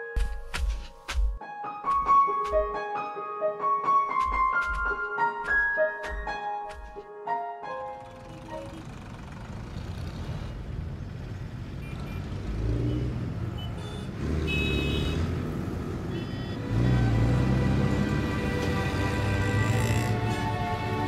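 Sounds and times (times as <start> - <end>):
vehicle engines rumbling: 8.0 - 21.0.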